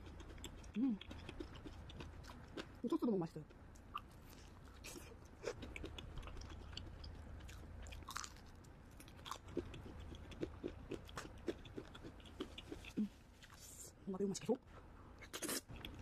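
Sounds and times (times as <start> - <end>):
chewing crispy fried chicken: 0.0 - 13.7, 15.2 - 16.0.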